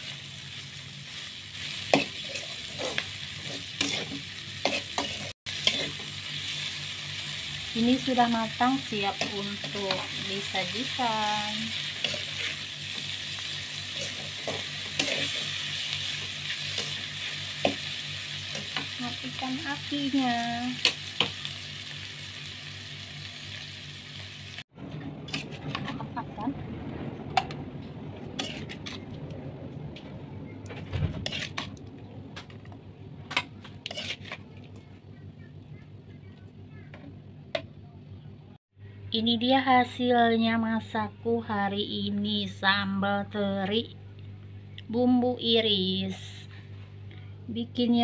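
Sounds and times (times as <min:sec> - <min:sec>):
sauce sizzling in a wok: 0:00.0 - 0:24.7
metal spatula scraping wok: 0:01.2 - 0:07.3, 0:07.9 - 0:19.4, 0:25.2 - 0:26.2, 0:28.2 - 0:29.2, 0:31.1 - 0:31.8, 0:33.3 - 0:34.5.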